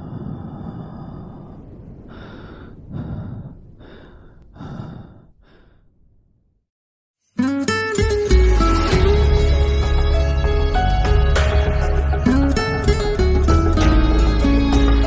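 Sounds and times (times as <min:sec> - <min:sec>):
breathy exhalations: 0:00.0 - 0:06.2
music: 0:07.3 - 0:15.0.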